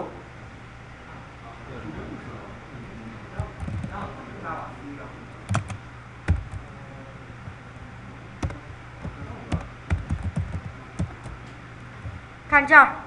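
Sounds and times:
computer keyboard typing: 0:03.4 - 0:04.1, 0:05.5 - 0:06.7, 0:08.4 - 0:11.4, 0:12.0 - 0:12.2.

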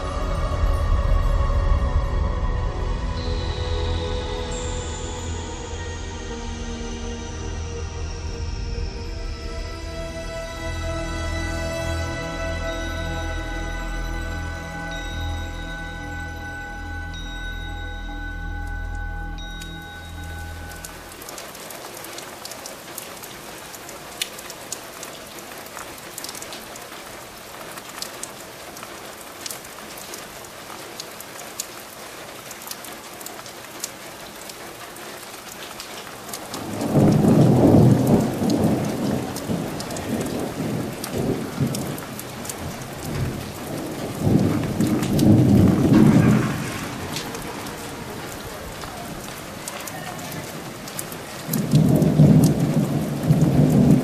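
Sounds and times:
steady rain: 0:00.0 - 0:54.0
sharp rain drop ticks: 0:11.4 - 0:54.0
rolling thunder: 0:36.6 - 0:54.0.

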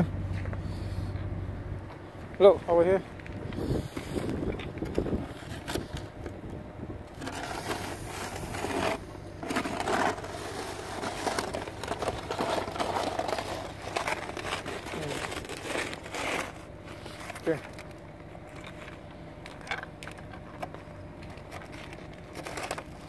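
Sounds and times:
snow shovel scraping snow: 0:07.2 - 0:17.6.

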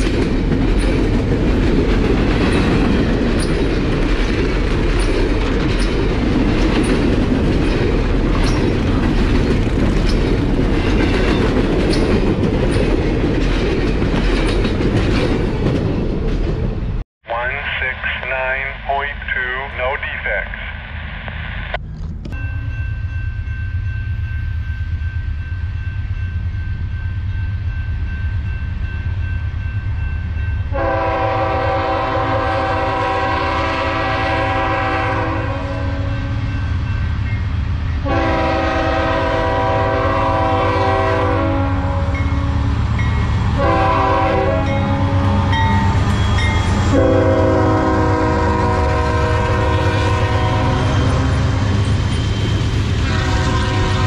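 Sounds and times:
freight train rumble: 0:00.0 - 0:54.0
locomotive air horn blasts: 0:30.7 - 0:36.3, 0:38.0 - 0:42.6, 0:43.6 - 0:45.5, 0:46.8 - 0:51.6, 0:53.0 - 0:54.0.

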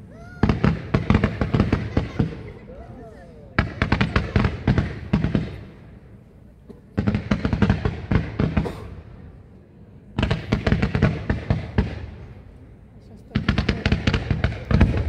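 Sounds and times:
fireworks volleys of rapid shots: 0:00.0 - 0:06.1, 0:06.9 - 0:09.2, 0:10.2 - 0:12.5, 0:13.3 - 0:15.0.

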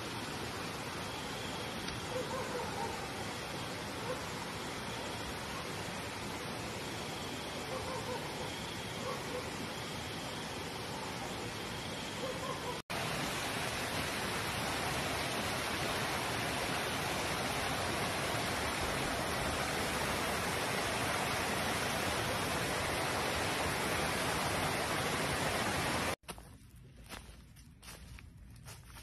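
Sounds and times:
stream water rushing: 0:12.9 - 0:26.2
footsteps on dry leaves: 0:26.2 - 0:29.0.

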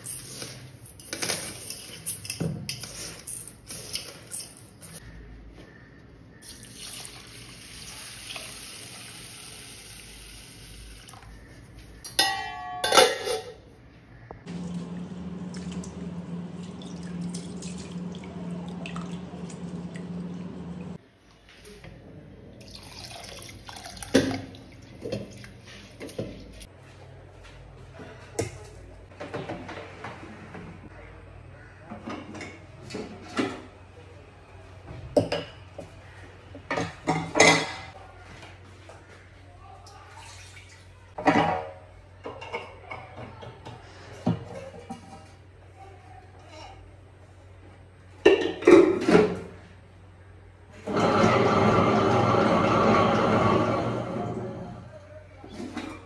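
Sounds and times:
tap water running into pot: 0:06.4 - 0:11.3, 0:14.5 - 0:21.0.

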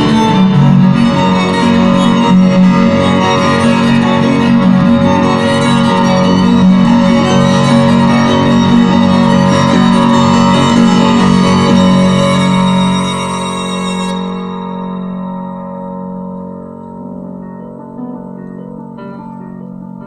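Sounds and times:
violin and cello playing: 0:00.0 - 0:15.3.

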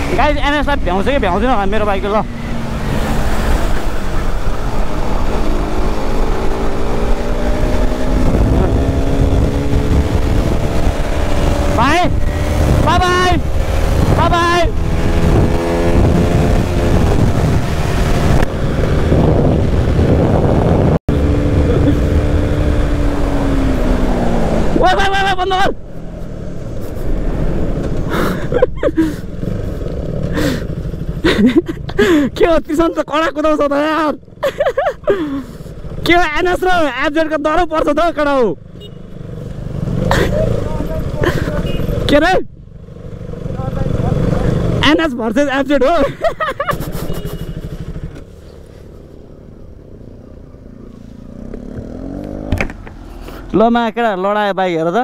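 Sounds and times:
wind rushing over microphone: 0:00.0 - 0:24.8
motorcycle engine running: 0:42.7 - 0:44.8, 0:46.4 - 0:53.0.

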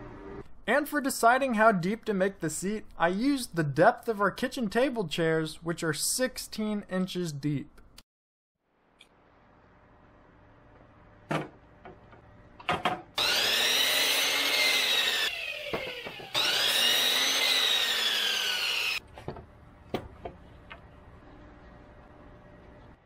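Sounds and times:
miter saw cutting wood: 0:13.2 - 0:19.0.

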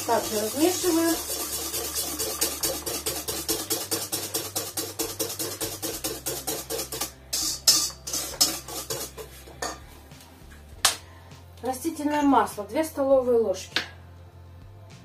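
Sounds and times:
utensil clicking against metal bowl: 0:01.2 - 0:09.1.

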